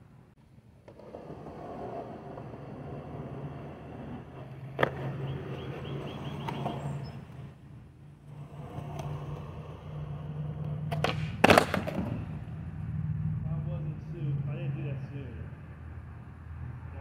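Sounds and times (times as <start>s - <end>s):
skateboard wheels rolling on concrete: 0.0s - 14.3s
skateboard tail popping: 4.0s - 7.4s, 8.7s - 12.4s.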